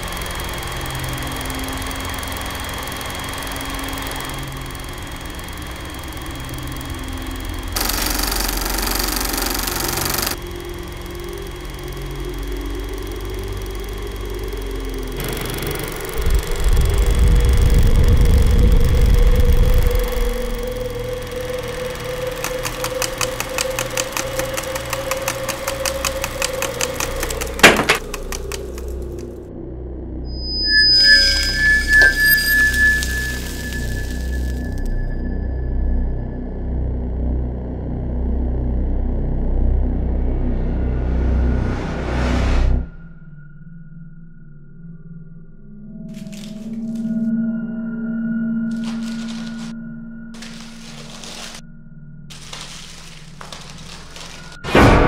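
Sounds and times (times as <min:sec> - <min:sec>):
loud burst of noise: 0:00.0 - 0:29.2
film projector whirring and rattling: 0:00.0 - 0:29.4, 0:31.2 - 0:35.1, 0:48.7 - 0:49.7, 0:50.4 - 0:51.6, 0:52.3 - 0:54.8.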